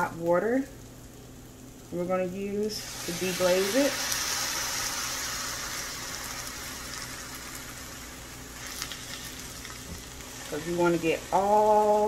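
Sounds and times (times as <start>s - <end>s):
water sizzling in a pan: 2.5s - 12.0s.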